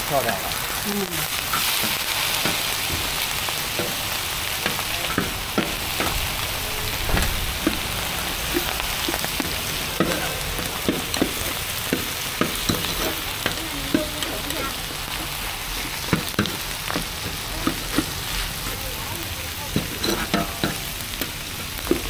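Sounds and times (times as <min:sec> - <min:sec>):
food sizzling on griddle: 0:00.0 - 0:22.0
metal spatula clicking and scraping: 0:19.7 - 0:22.0.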